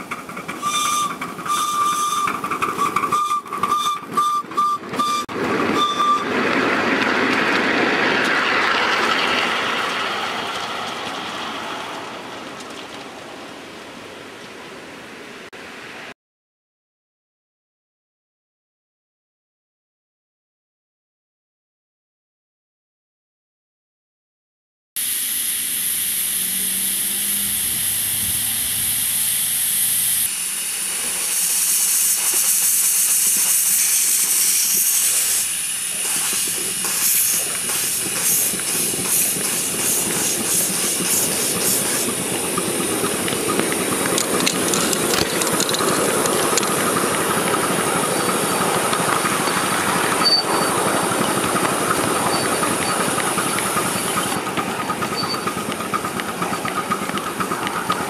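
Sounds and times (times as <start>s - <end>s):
steam locomotive hissing: 0.0s - 6.5s, 25.0s - 58.0s
rough rushing hiss: 25.0s - 57.9s.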